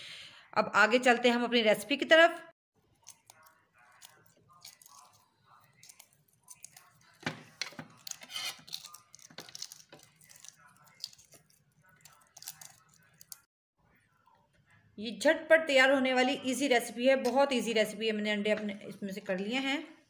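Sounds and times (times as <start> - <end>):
egg shell crackling and tearing: 3.0 - 13.5.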